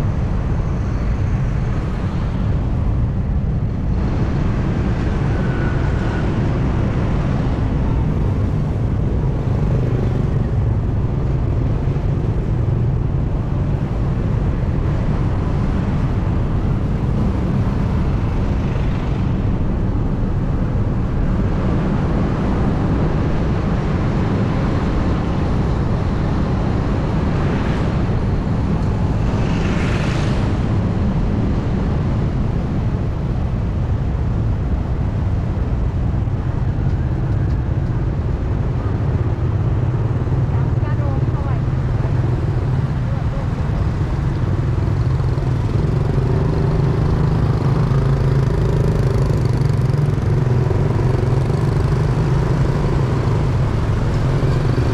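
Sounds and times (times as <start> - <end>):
wind and road noise: 0.0 - 54.9
vehicle passing with hiss: 29.0 - 31.4.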